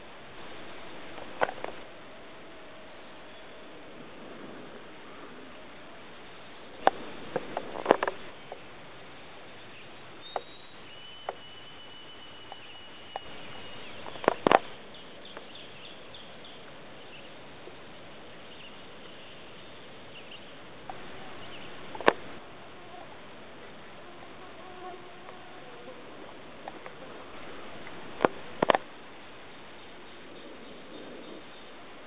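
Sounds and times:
background hiss: 0:00.0 - 0:32.0
sharp clicks and knocks: 0:00.4 - 0:01.8, 0:06.8 - 0:08.3, 0:12.5 - 0:14.8, 0:20.9 - 0:22.4
insect-like buzzing: 0:00.4 - 0:01.9, 0:06.2 - 0:08.4, 0:11.2 - 0:14.8, 0:20.9 - 0:23.1, 0:23.9 - 0:28.9.

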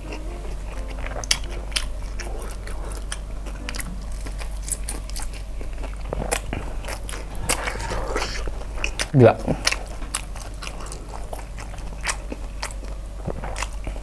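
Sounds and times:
person chewing crunchy food: 0:00.0 - 0:14.0.

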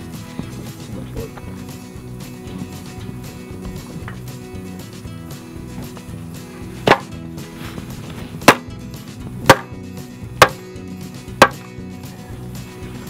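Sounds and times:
background music: 0:00.0 - 0:13.0
chopping into wooden board: 0:06.8 - 0:07.1, 0:08.4 - 0:08.7, 0:09.5 - 0:09.8, 0:10.4 - 0:10.7, 0:11.4 - 0:11.7.

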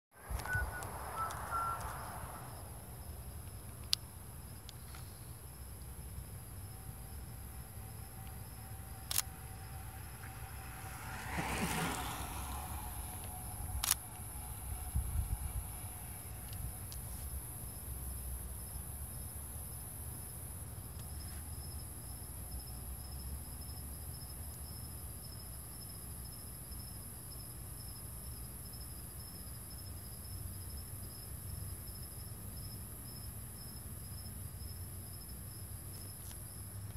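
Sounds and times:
crickets chirping: 0:00.2 - 0:36.9
low rumble: 0:05.6 - 0:17.0.

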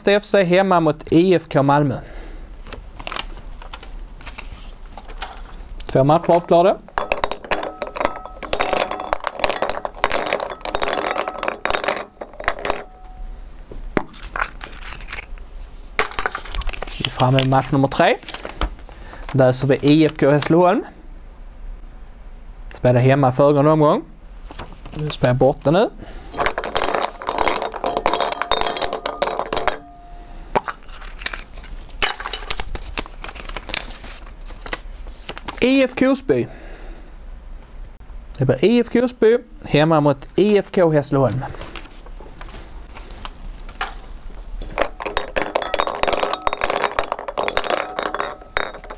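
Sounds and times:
paper slip crinkling: 0:02.6 - 0:05.7, 0:14.1 - 0:19.4, 0:30.7 - 0:35.7
plastic balls rattling in glass bowl: 0:03.0 - 0:13.2, 0:16.0 - 0:18.4, 0:26.3 - 0:34.2, 0:43.4 - 0:48.9
ball clicks: 0:05.8 - 0:13.2, 0:26.4 - 0:30.0, 0:44.6 - 0:48.9.

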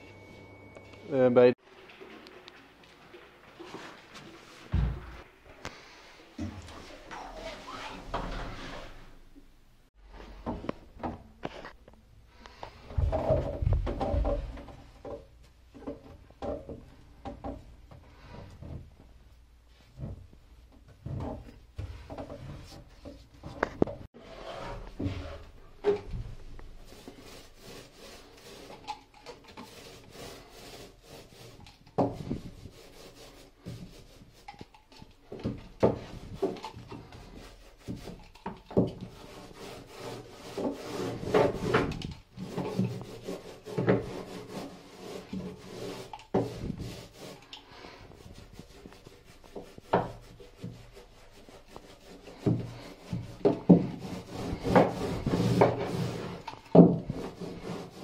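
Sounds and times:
paintbrush swishing over wood: 0:26.7 - 0:34.7, 0:39.1 - 0:58.0.

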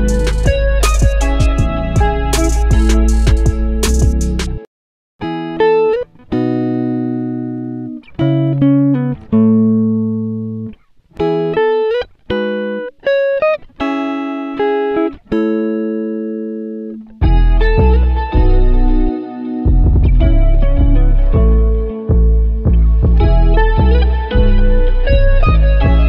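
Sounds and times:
melody of struck notes: 0:00.0 - 0:04.6.

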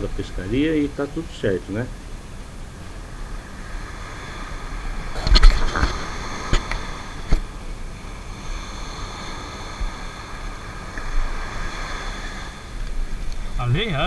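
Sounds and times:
small waves washing up sand: 0:00.0 - 0:14.0
wind rumbling on microphone: 0:00.0 - 0:14.0.

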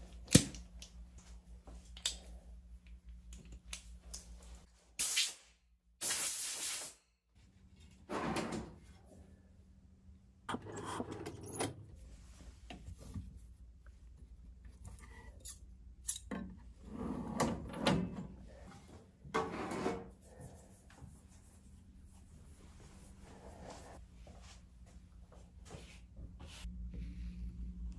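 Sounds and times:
metal drawer sliding open: 0:08.1 - 0:08.8, 0:10.5 - 0:11.9, 0:16.9 - 0:18.4.

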